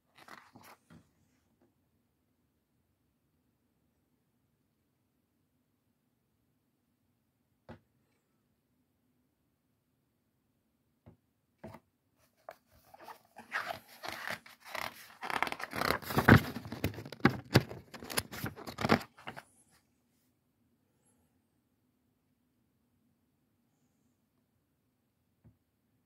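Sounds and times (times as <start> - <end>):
book pages turning: 0.2 - 0.8, 12.3 - 19.4.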